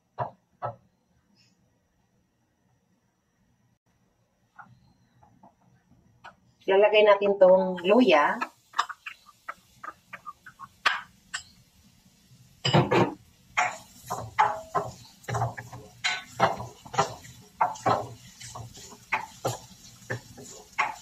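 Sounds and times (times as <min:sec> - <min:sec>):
spatula scraping a wok: 0:13.6 - 0:21.0
spatula tapping a bowl: 0:13.6 - 0:21.0.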